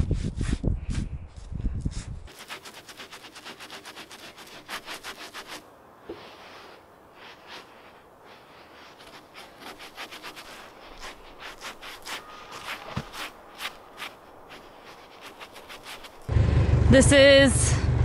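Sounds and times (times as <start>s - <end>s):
rag scrubbing wood: 2.3s - 16.3s.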